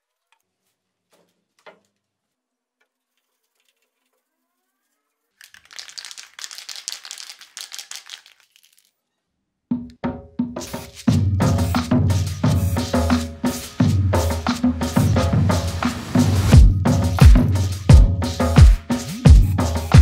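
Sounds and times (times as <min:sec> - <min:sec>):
cloth rubbing over plastic pipe: 0:10.6 - 0:16.6.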